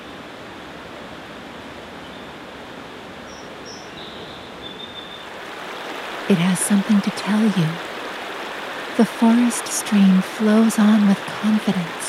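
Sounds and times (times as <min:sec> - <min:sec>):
stream rushing over rocks: 0:04.4 - 0:12.0.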